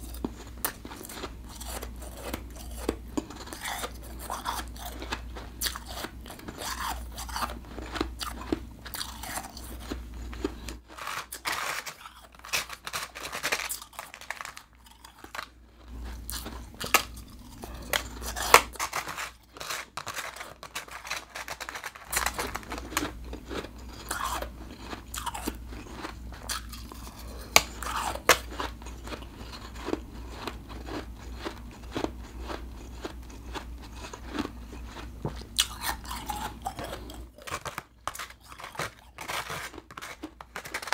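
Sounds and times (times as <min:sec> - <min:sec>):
chewing crunchy ice: 0:00.0 - 0:40.9.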